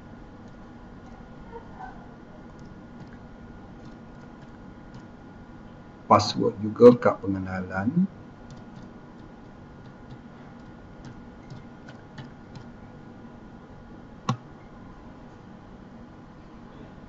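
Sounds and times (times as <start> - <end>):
faint keyboard keystrokes: 3.8 - 5.1, 8.5 - 12.8.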